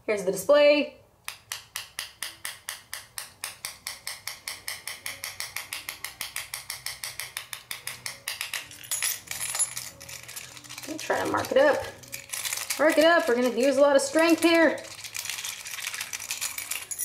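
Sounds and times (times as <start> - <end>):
metal key scraping glass screen: 8.7 - 17.0.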